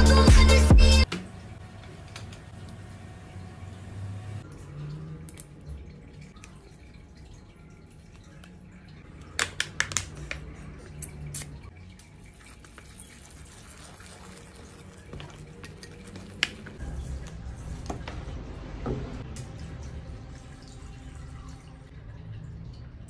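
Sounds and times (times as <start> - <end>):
water pouring into dish: 4.8 - 18.1.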